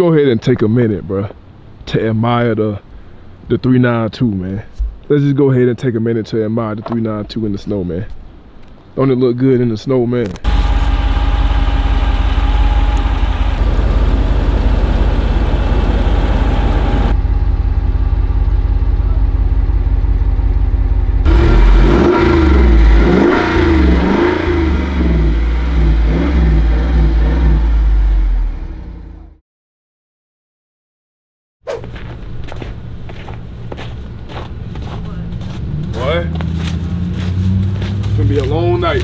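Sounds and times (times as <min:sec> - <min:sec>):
engine idling and revving: 0:10.4 - 0:29.4, 0:32.8 - 0:39.0.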